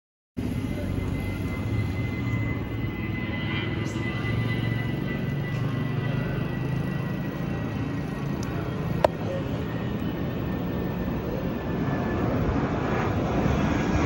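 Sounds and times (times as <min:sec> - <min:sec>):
airliner flying overhead: 0:00.4 - 0:14.0.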